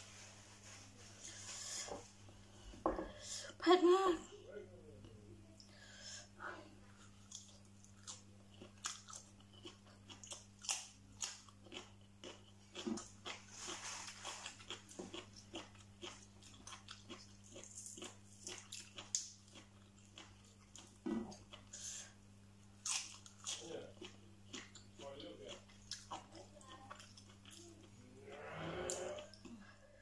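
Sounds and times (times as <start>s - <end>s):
steady low hum: 0.0s - 30.0s
person chewing and crunching food: 6.8s - 29.9s.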